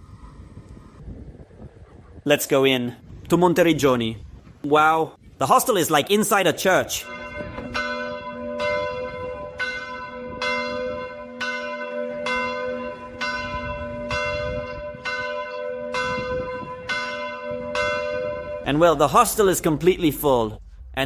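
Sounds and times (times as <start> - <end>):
church bell tolling: 7.0 - 20.9.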